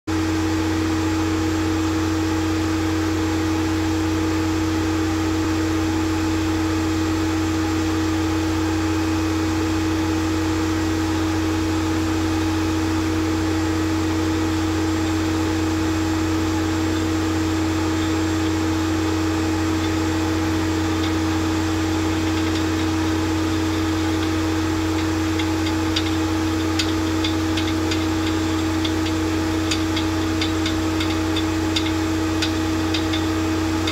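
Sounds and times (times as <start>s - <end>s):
drill rig mechanical hum: 0.1s - 33.9s
light irregular ticks: 19.8s - 21.3s, 21.9s - 33.9s.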